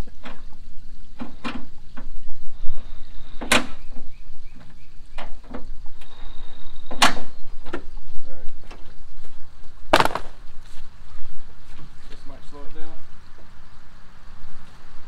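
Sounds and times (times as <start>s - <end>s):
sharp loud knock: 10.0s - 10.4s.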